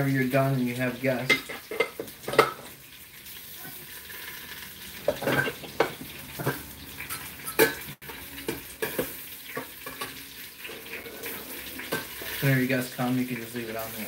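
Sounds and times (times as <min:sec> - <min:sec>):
metal lid clinking against pot: 0:05.1 - 0:07.9.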